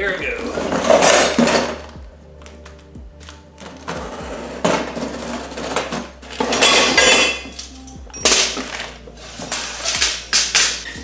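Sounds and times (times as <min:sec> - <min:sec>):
metal parts clattering: 0:06.3 - 0:11.0.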